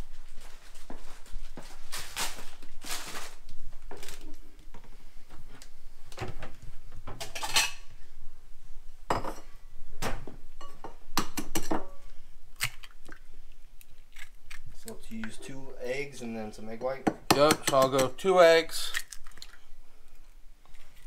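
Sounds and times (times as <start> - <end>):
dishes and utensils clattering: 7.2 - 7.9.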